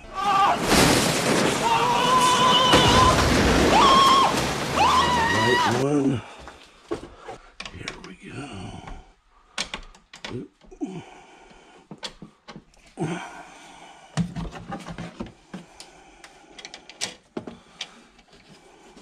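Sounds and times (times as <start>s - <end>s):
rustling: 0.2s - 5.8s.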